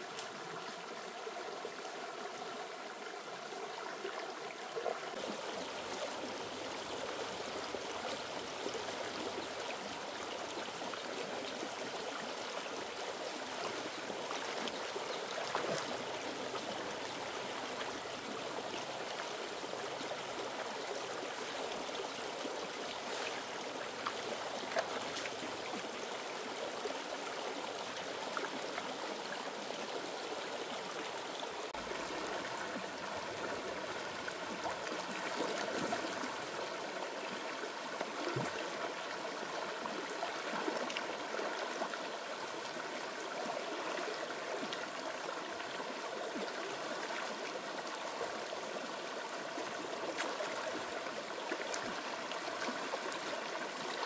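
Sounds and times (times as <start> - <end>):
stream water running: 0.0 - 54.0.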